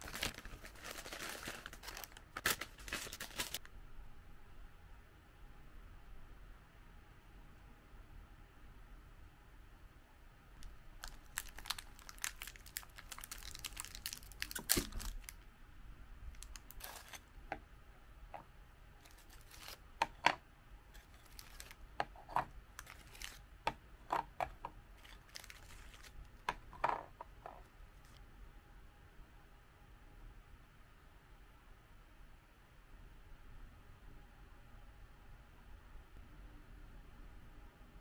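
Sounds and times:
plastic wrapper crinkling and tearing: 0.0s - 3.7s, 11.0s - 15.4s, 16.3s - 17.4s, 19.0s - 20.2s, 21.0s - 23.4s, 24.9s - 26.8s.

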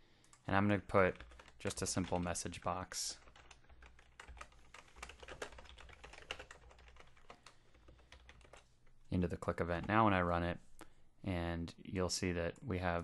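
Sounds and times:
faint keyboard typing: 0.2s - 10.2s.

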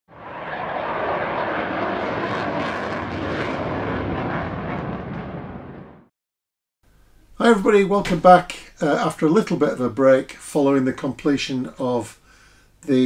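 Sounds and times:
jet aircraft engine rushing: 0.1s - 6.1s.

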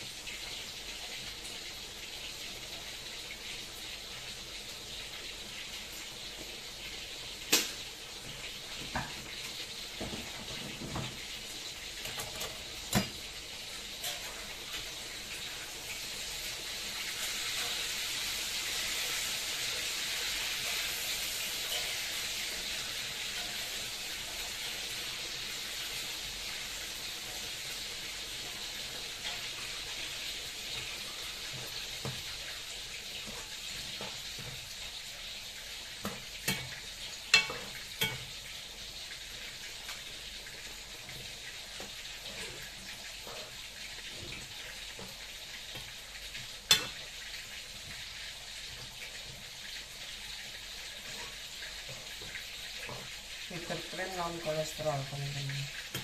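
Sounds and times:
soup bubbling in a wok: 0.0s - 53.8s.

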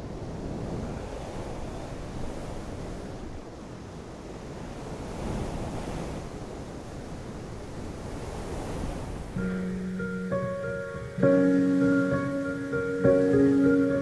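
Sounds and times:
soft piano notes: 9.4s - 14.0s.

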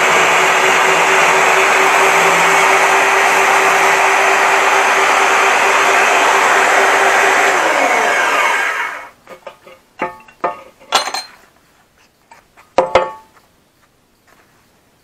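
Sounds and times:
band saw winding down: 0.0s - 9.2s
steel tubes clanking on table: 9.3s - 11.4s.

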